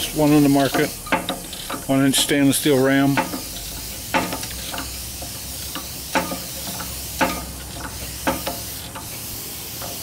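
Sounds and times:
steam hissing: 0.0 - 10.0
hand pump lever clacking: 0.6 - 2.4, 3.1 - 9.2.

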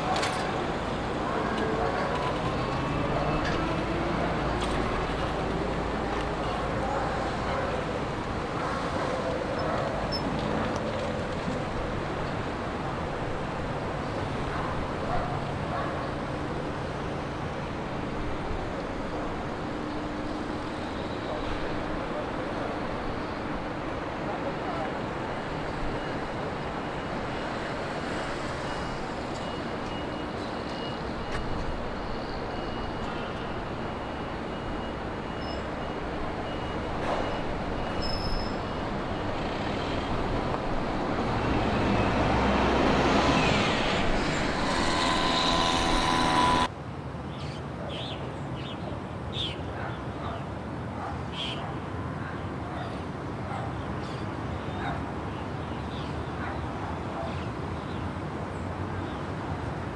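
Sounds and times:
city street traffic: 0.0 - 59.9
large vehicle passing with whine: 38.6 - 46.7.

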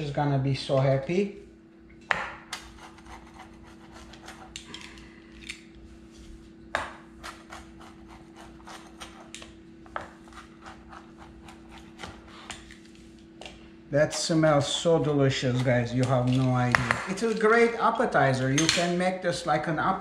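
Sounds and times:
faint steady hum: 0.0 - 20.0
pizza cutter crunching crust: 2.6 - 4.8, 7.2 - 12.8.

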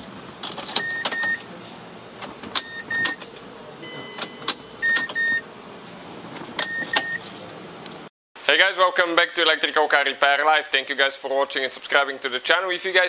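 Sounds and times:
ignition key clicks: 4.2 - 5.3.

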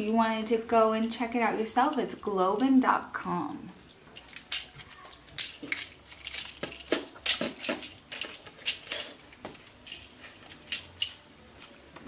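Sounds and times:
plastic packet crinkling: 4.1 - 11.8.

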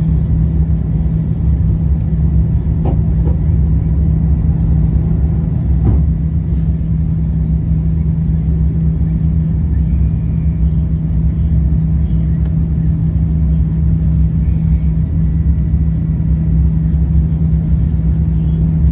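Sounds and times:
jet engines droning in cabin: 0.0 - 18.9.

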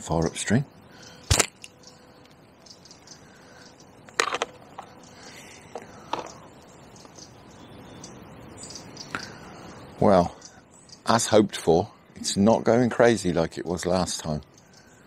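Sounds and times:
catapult elastic snapping: 1.3 - 1.7.

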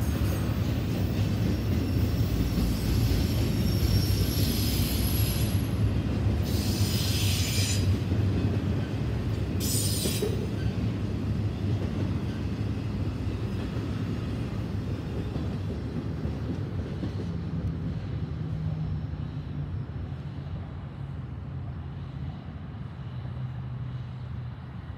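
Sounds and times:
train wheels rumbling on rail: 0.0 - 24.9
high wheel squeals: 6.5 - 7.9.

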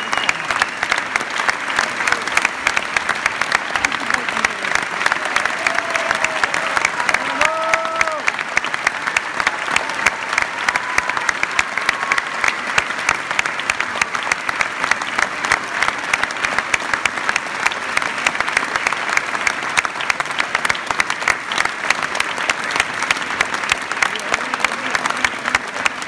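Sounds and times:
audience applauding: 0.0 - 26.0.

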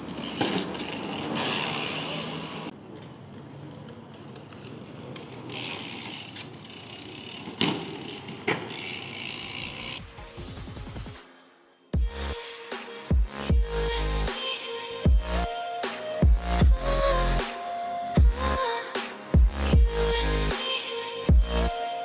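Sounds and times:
bike freewheel buzzing and clicking: 0.0 - 10.0
tyres rolling: 0.0 - 10.0.

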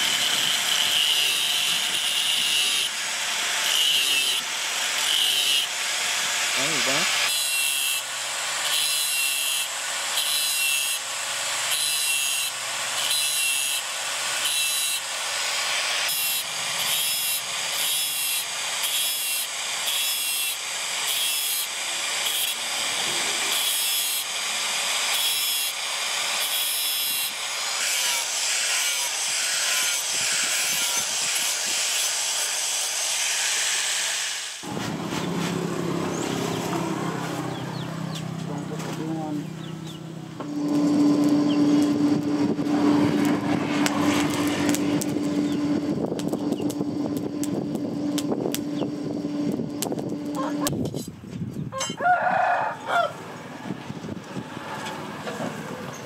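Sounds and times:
angle grinder cutting steel: 0.0 - 51.1.

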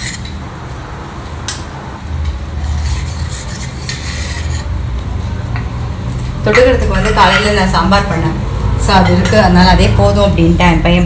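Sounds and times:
metal scrape: 0.0 - 0.4, 2.6 - 4.8.

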